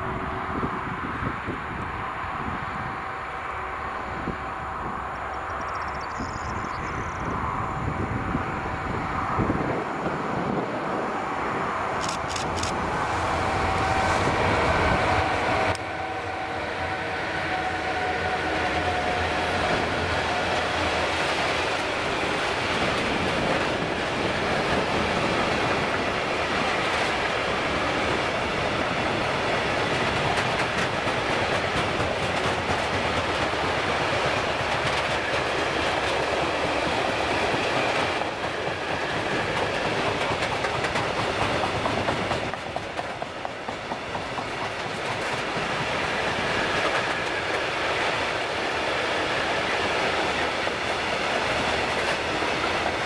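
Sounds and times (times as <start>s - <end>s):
train wheels clattering over joints: 29.8s - 47.8s.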